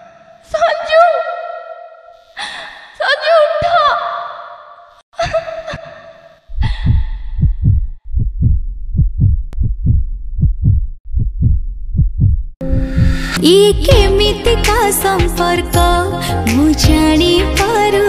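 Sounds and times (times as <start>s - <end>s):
woman sobbing: 5.2s - 7.1s
heartbeat thumps: 6.5s - 14.1s
music with singing: 12.9s - 18.0s.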